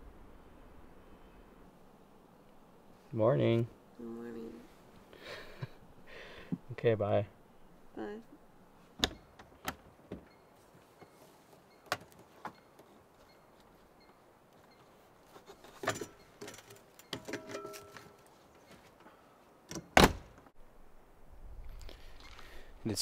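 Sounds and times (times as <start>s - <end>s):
door banging shut: 19.7s - 20.4s.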